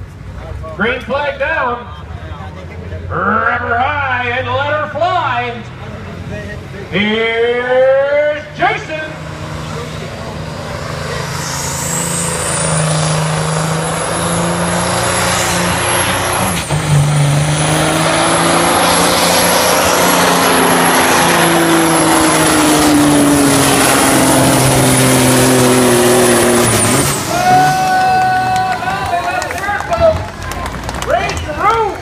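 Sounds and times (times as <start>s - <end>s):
diesel tractor at full throttle: 0.0s - 32.0s.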